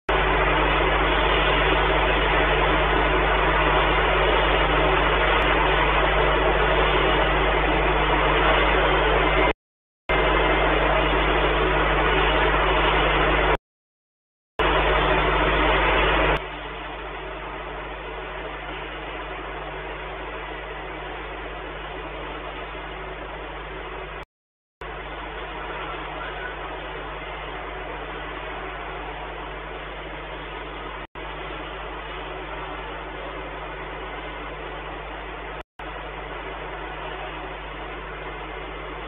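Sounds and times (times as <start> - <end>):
low electrical hum: 24.8 - 39.0.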